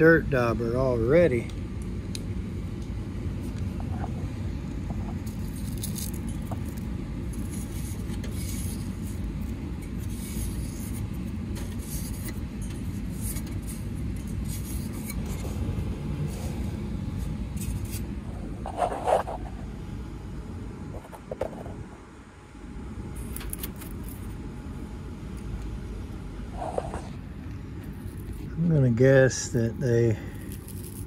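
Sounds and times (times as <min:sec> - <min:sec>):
steady low rumble: 0:00.0 - 0:31.0.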